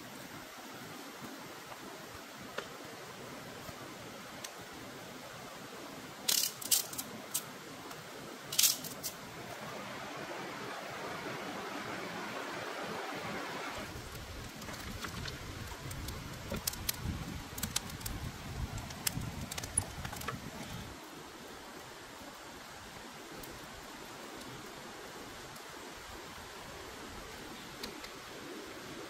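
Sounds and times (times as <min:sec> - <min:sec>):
stream water flowing: 0:00.0 - 0:29.0
campfire crackling and popping: 0:13.8 - 0:20.6.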